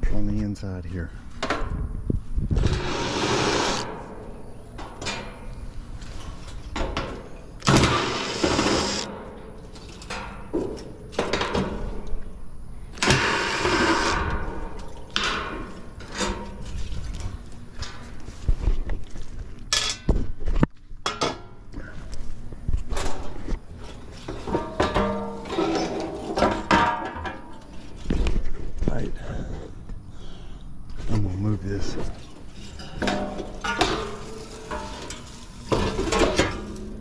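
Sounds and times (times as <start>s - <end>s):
impact driver bursts: 2.6s - 3.9s, 7.6s - 9.1s
metal panels clanking and rattling: 24.2s - 27.9s, 32.0s - 37.0s.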